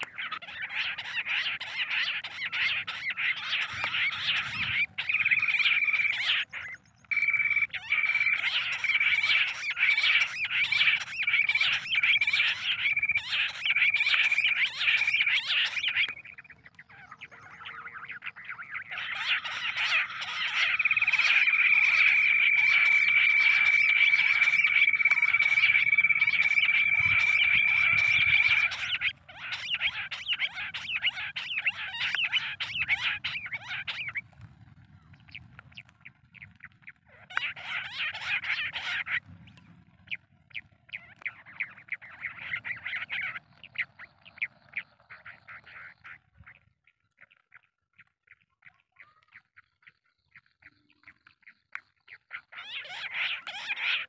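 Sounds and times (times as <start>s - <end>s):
quail calls chattering: 0.0s - 54.0s
steady high whistling tone: 7.1s - 9.5s, 20.5s - 29.0s.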